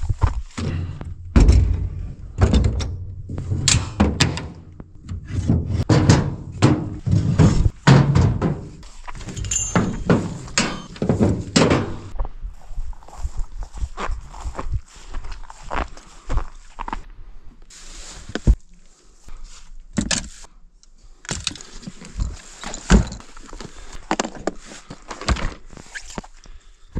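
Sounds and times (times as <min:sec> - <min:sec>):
knocks and heavy thuds: 0:00.0 - 0:12.2.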